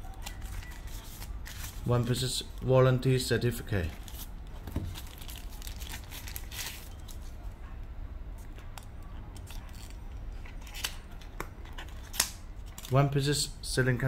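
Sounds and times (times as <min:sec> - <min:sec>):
plastic bag rustling: 0:03.8 - 0:07.3.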